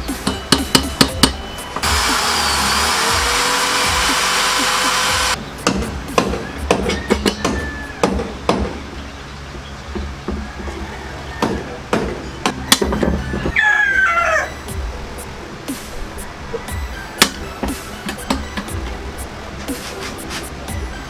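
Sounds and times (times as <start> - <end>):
electric drill whining into steel: 1.2 - 5.4.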